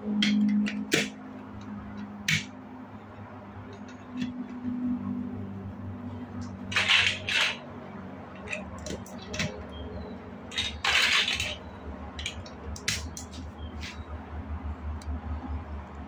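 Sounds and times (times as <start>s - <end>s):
plastic blocks rattling scrapes: 6.7s - 7.6s, 10.5s - 13.0s
plastic blocks clicking: 10.5s - 11.6s.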